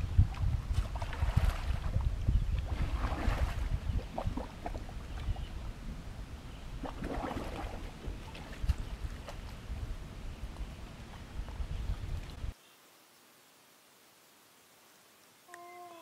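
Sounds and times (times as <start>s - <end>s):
water splashing and dripping: 0.0s - 5.4s, 6.8s - 9.9s, 10.5s - 12.6s
wind rumble on microphone: 0.0s - 12.6s.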